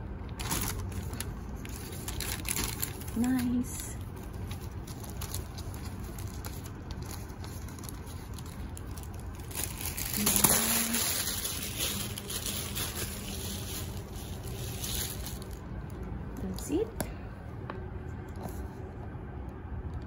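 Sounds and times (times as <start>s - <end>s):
plastic bag and paper rustling: 0.3s - 16.0s.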